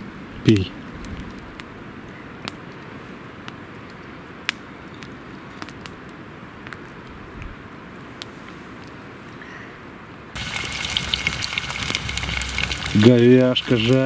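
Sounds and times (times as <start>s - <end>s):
campfire crackling: 0.0s - 9.4s, 10.0s - 14.0s
steady hiss: 10.4s - 14.0s.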